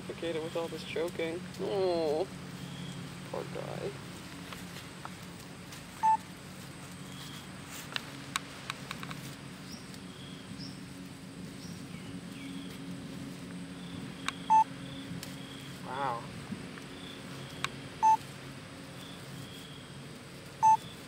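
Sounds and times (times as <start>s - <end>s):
low hum: 0.0s - 21.0s
bird chirps: 13.8s - 15.8s, 16.9s - 18.2s, 20.6s - 21.0s
short high beeps: 20.6s - 20.9s.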